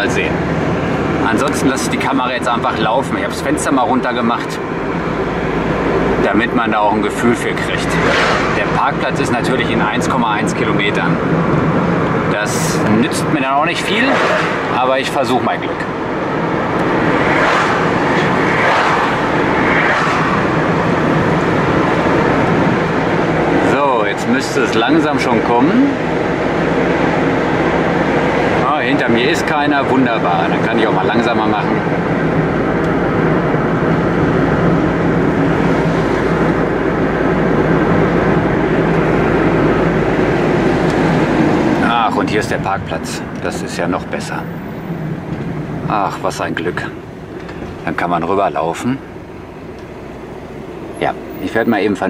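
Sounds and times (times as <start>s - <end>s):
oncoming cars passing: 0.0s - 52.0s
road and wind noise: 0.0s - 52.0s
wind rushing: 7.6s - 9.3s, 13.1s - 23.8s, 31.6s - 43.3s.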